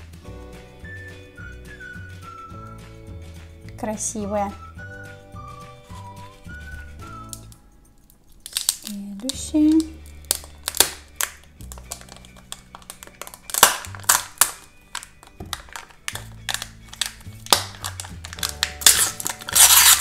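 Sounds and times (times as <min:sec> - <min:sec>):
background music: 0:00.0 - 0:20.0
packaging crinkling: 0:08.0 - 0:20.0.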